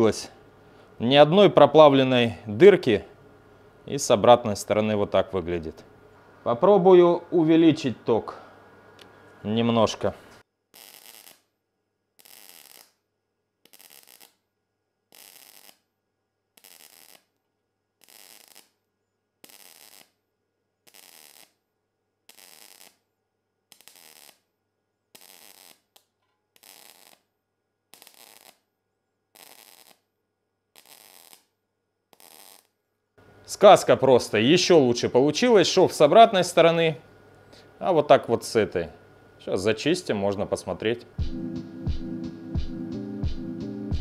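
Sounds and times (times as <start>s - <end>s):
welding arc crackles: 10.8s - 11.5s, 12.2s - 13.0s, 13.6s - 14.4s, 15.1s - 15.9s, 16.6s - 17.4s, 18.0s - 18.8s, 19.4s - 20.2s, 20.8s - 21.6s, 22.3s - 23.0s, 23.7s - 24.5s, 25.1s - 27.3s, 27.9s - 28.6s, 29.4s - 30.0s, 30.7s - 31.5s, 32.1s - 32.7s.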